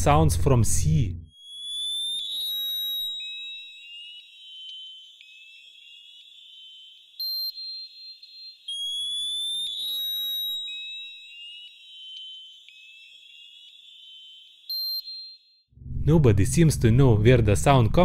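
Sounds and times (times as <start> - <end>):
electronic sonar ping: 1.3 - 16.1
rising electronic chirps: 1.3 - 16.7.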